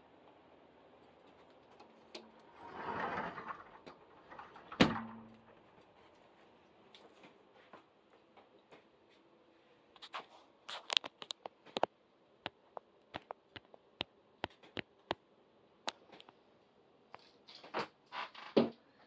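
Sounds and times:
scraping rustles: 1.2s - 7.4s.

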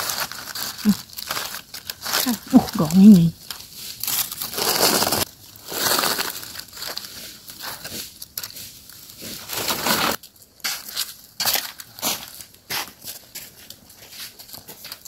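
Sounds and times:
dry leaves crackling and rustling: 0.0s - 15.0s.

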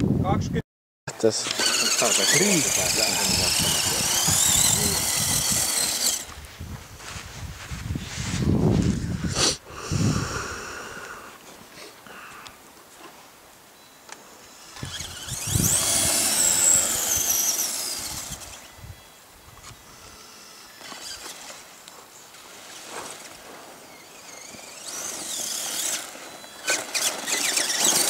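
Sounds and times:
electric motor whining: 1.4s - 6.4s, 14.4s - 21.7s, 22.5s - 28.0s.

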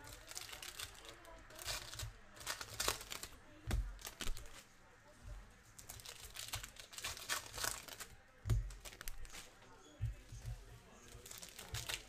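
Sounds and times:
foil wrapper crinkling: 0.0s - 4.6s, 5.8s - 9.6s, 11.1s - 12.0s
cards being handled: 10.4s - 12.0s.

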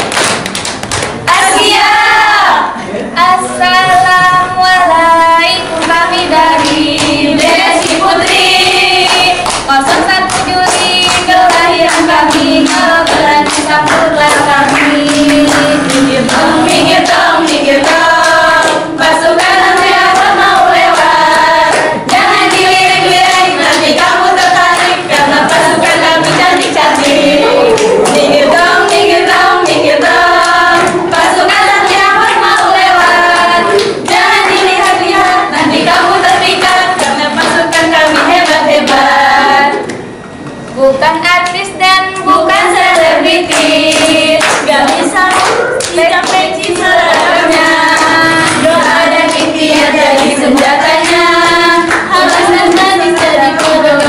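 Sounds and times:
hand claps and slaps: 0.0s - 1.2s, 9.0s - 29.8s, 43.0s - 54.0s
girls singing in unison: 1.2s - 39.9s, 40.8s - 54.0s.

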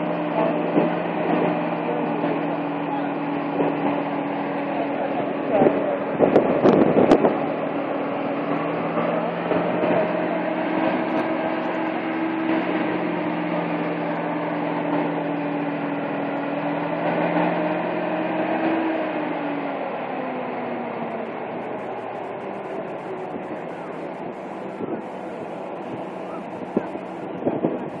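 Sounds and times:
steady hum: 0.0s - 19.6s, 20.6s - 28.0s
truck engine running: 0.0s - 28.0s.

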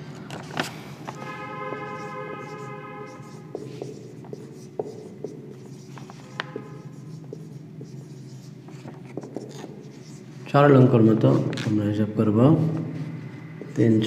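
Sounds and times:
marker pen writing on whiteboard: 1.1s - 11.7s.

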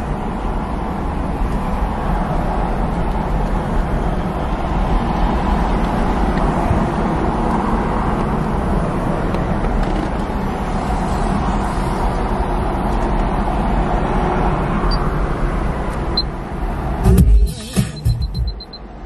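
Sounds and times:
faint short high beeps: 17.6s - 18.9s.

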